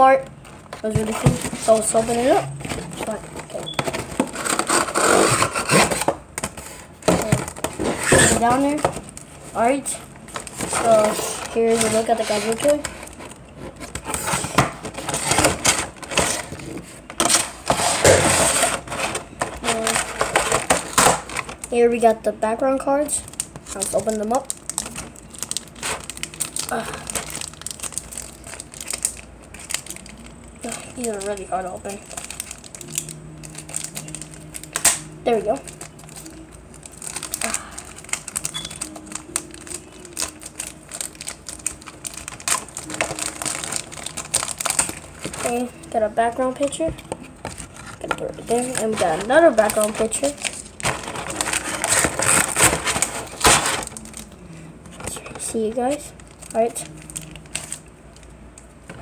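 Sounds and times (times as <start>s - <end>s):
plastic wrapping crinkling: 0.0s - 22.1s, 23.0s - 59.0s
plastic packaging crackling: 0.0s - 22.3s, 23.0s - 59.0s.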